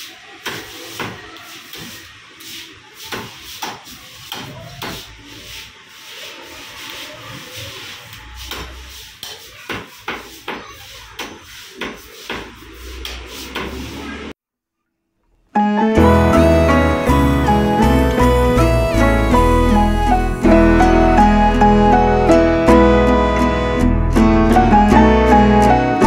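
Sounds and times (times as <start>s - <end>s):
music: 15.6s - 26.0s.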